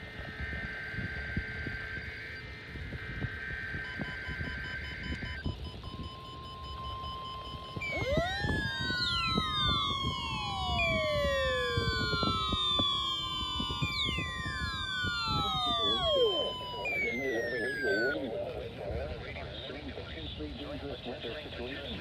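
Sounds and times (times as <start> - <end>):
digital data burst: 0.0 - 18.2
radio alarms wailing: 0.0 - 18.2
steady alert tone: 3.8 - 18.2.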